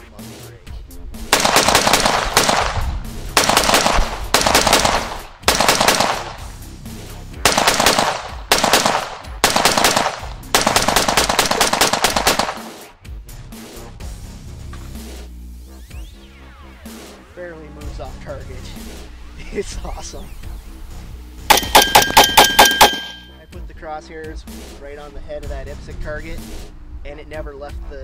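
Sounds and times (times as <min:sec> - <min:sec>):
rifle shots in fast strings: 0:01.2 - 0:06.5, 0:07.4 - 0:13.0, 0:21.5 - 0:23.3.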